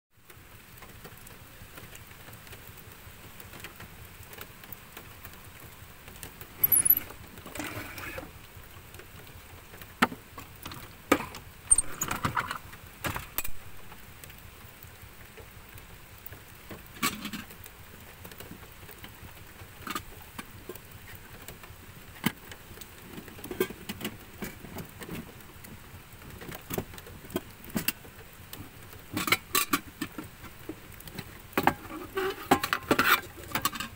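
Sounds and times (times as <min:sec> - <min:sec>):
steady faint hiss: 0:00.2 - 0:33.9
clicks and clinks of handling: 0:06.6 - 0:07.2.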